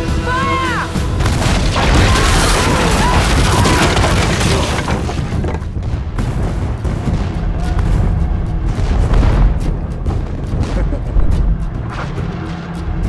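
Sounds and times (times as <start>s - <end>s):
film score: 0.0s - 13.0s
cannons firing: 1.1s - 10.8s.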